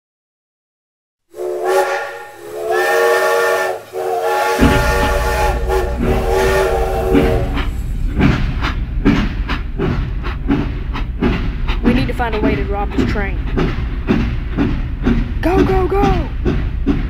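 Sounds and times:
steam locomotive whistle: 1.3s - 7.9s
locomotive chugging: 1.4s - 17.0s.

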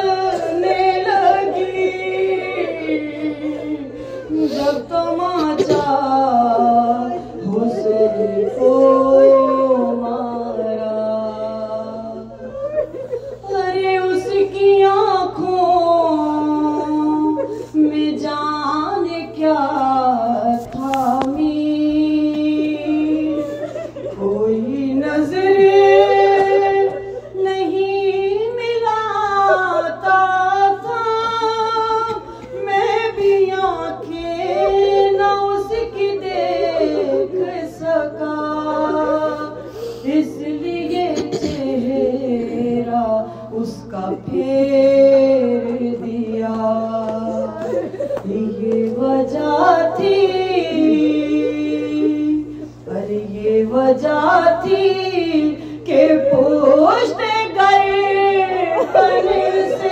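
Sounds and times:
steady low hum: 0.0s - 59.9s.

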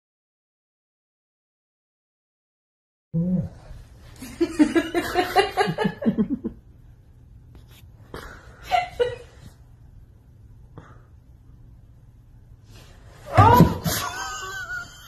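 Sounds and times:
short vocal sound: 3.2s - 3.8s
person laughing: 13.4s - 15.0s.

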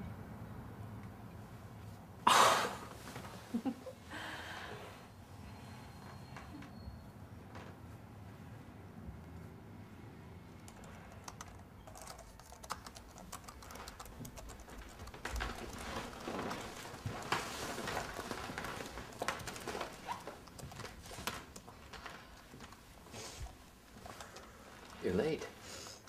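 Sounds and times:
laptop keyboard typing: 10.5s - 22.8s, 23.4s - 25.1s.

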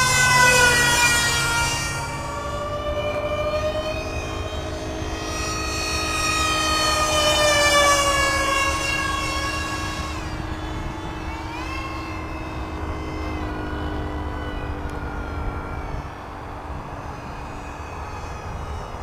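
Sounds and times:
electric ducted fan jet whine: 0.0s - 19.0s.

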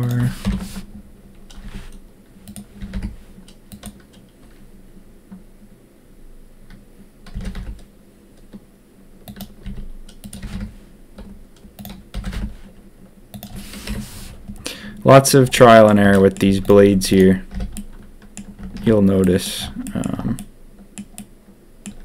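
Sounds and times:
faint low hum: 0.0s - 22.0s
keyboard keys tapping: 6.7s - 7.9s, 9.3s - 12.6s
mouse clicks: 19.2s - 22.0s.

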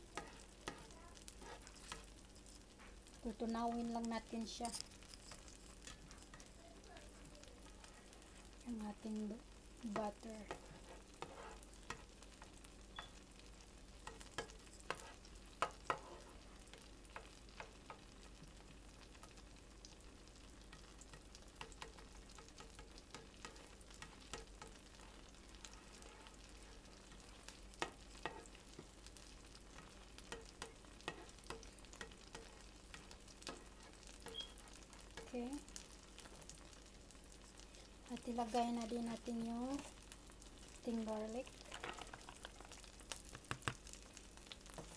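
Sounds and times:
butter sizzling in pan: 0.0s - 44.9s
spoon scraping and tapping pan: 0.1s - 2.9s, 4.5s - 6.5s, 9.9s - 13.2s, 14.0s - 18.3s, 20.6s - 36.6s, 41.4s - 44.0s, 44.7s - 44.9s.

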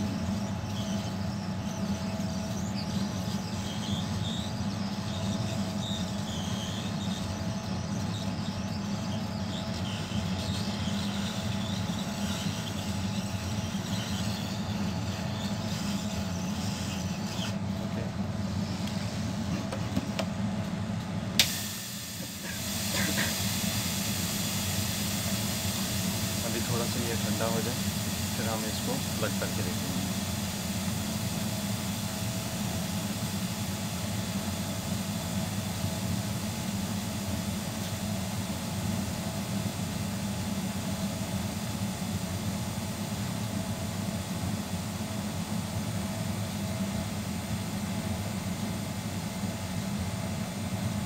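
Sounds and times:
hot air blower hissing: 21.3s - 51.0s.

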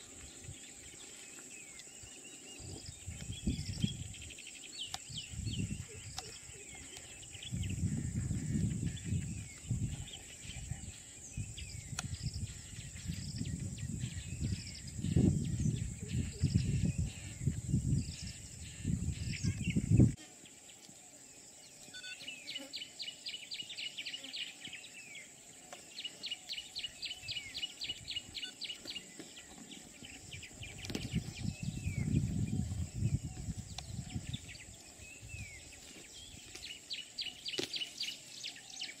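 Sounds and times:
high insect drone: 0.0s - 39.0s
low rumbling on microphone: 7.4s - 20.2s.

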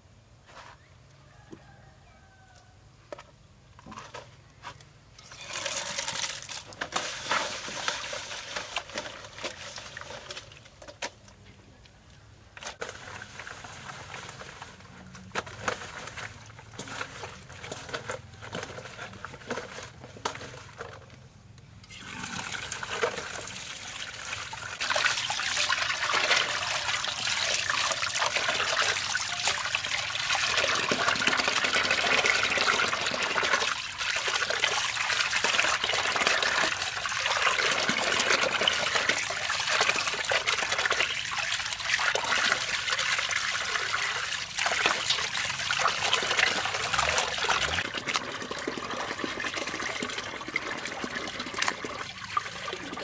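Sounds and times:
water running and splashing: 22.0s - 53.0s.

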